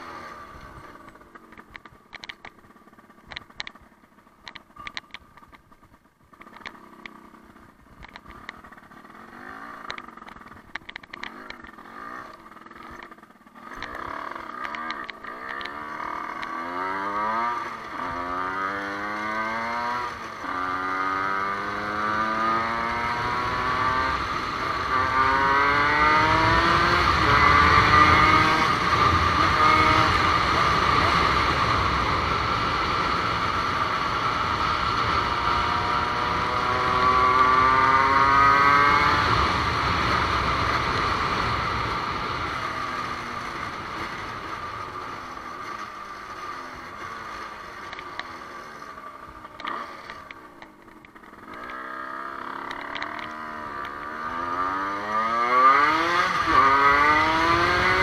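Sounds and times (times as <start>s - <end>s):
motorcycle engine accelerating: 0.0s - 58.0s
scattered clicks: 1.0s - 7.2s, 7.9s - 9.0s, 9.8s - 16.6s, 46.3s - 48.4s, 49.4s - 51.9s, 52.6s - 54.1s.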